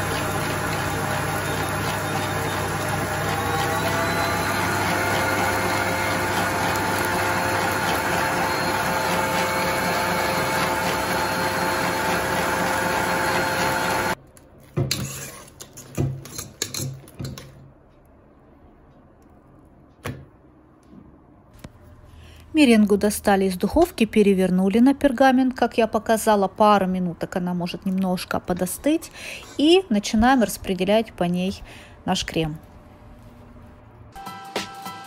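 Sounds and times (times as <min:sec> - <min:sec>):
stand mixer motor running: 0:00.0 - 0:14.2.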